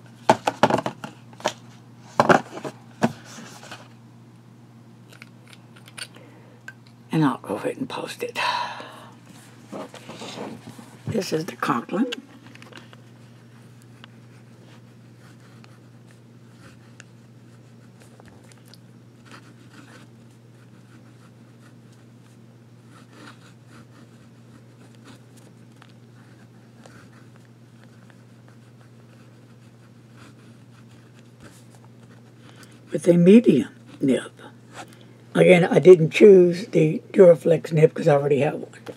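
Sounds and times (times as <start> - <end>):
steady low hum: 0.0 - 38.9
fountain pen scratching on paper: 15.2 - 18.1, 19.2 - 22.0, 22.8 - 25.4, 26.2 - 32.3.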